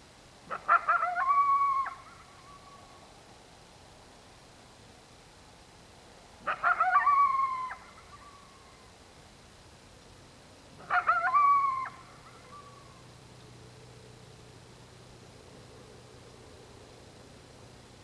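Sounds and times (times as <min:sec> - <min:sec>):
coyotes yipping and howling: 0:00.5 - 0:03.1, 0:06.4 - 0:08.9, 0:10.8 - 0:13.2.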